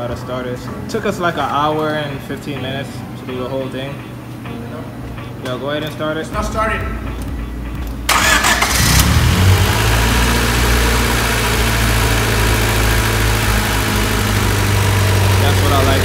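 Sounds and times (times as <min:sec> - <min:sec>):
car engine cranking and idling: 0:07.1 - 0:16.0.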